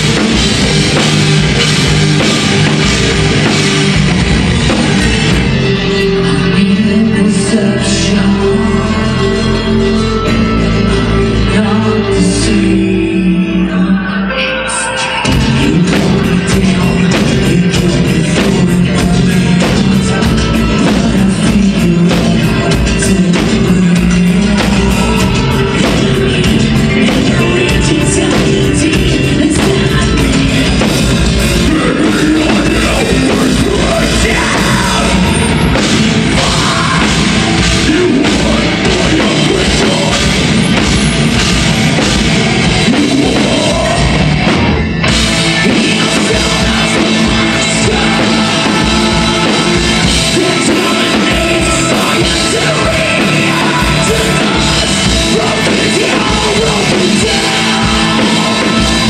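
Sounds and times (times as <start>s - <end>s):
fast drumming: 0.0s - 6.1s, 15.3s - 59.0s
bass guitar: 0.0s - 59.0s
distorted electric guitars: 0.0s - 59.0s
vocalist singing into microphone: 4.6s - 59.0s.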